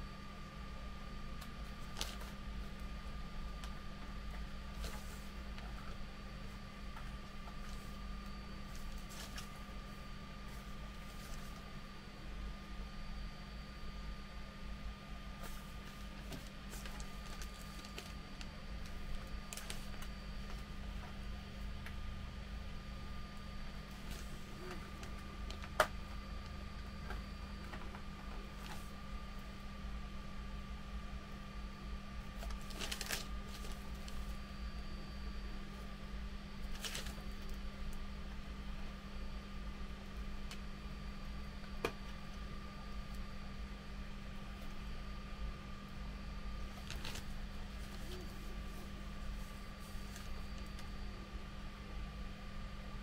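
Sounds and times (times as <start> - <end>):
steady background hum: 0.0 - 53.0.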